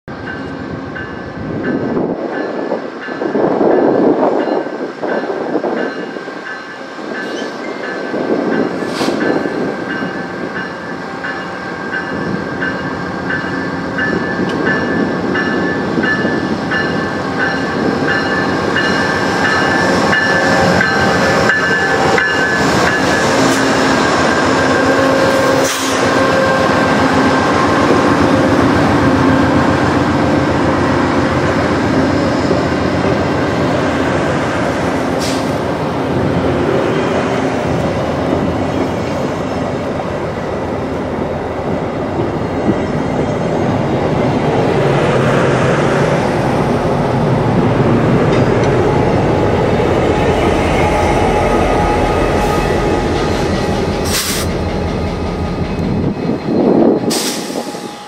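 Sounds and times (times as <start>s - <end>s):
diesel locomotive passing: 0.0s - 58.0s
train wheels on rails: 0.1s - 58.0s
locomotive bell ringing: 0.2s - 29.6s, 48.3s - 58.0s.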